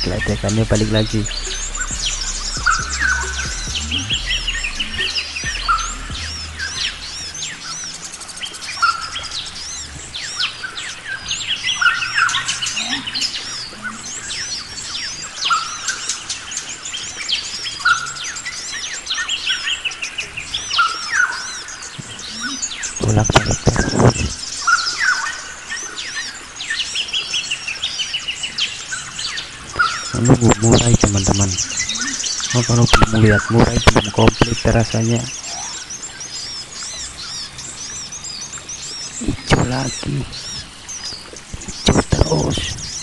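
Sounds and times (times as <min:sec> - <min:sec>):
low thumps and rumbling: 0:00.0 - 0:12.9, 0:23.0 - 0:24.4
birds calling and singing: 0:00.0 - 0:43.0.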